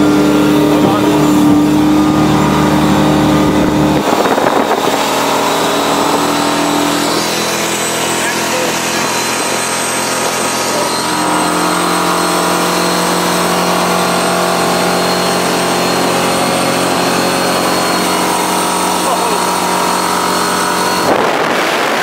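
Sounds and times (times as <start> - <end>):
powerboat engine drone: 0.0 - 22.0
wind and water rushing: 0.0 - 22.0.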